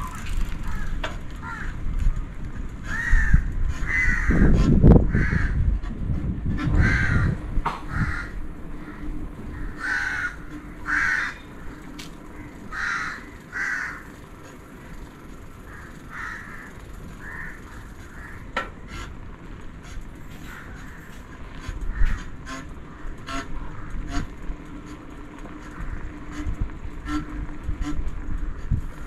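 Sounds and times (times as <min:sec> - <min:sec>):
bird calling: 0:00.0 - 0:02.2, 0:02.8 - 0:05.6, 0:06.6 - 0:19.2, 0:19.8 - 0:28.7
low rumble: 0:00.0 - 0:13.5.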